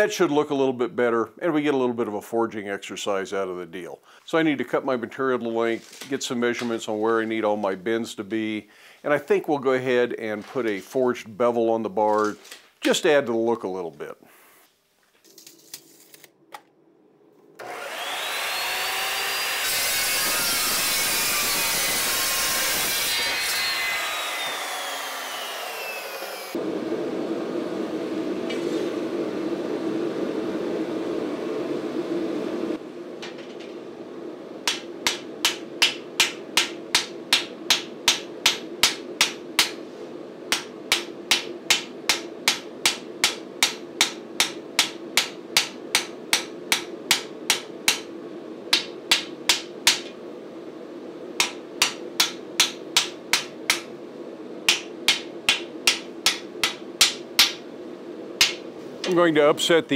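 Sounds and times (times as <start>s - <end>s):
gas forge roaring: 24.0s - 48.0s
hammer striking steel on anvil: 34.6s - 39.8s, 40.5s - 48.1s, 48.7s - 50.1s, 51.4s - 53.9s, 54.7s - 57.6s, 58.4s - 58.6s.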